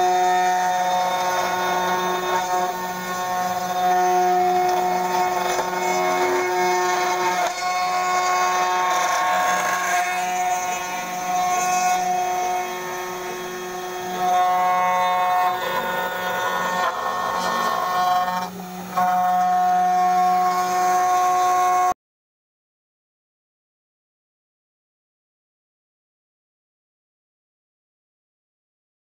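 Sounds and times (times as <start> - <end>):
rough cutting noise: 0.0 - 22.0
router spindle whine: 0.0 - 22.0.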